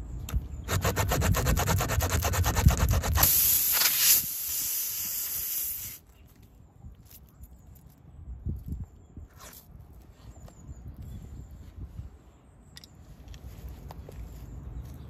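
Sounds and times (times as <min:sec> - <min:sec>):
rasp scraping in tyre: 0:00.6 - 0:04.3
air hissing from puncture: 0:02.5 - 0:06.0.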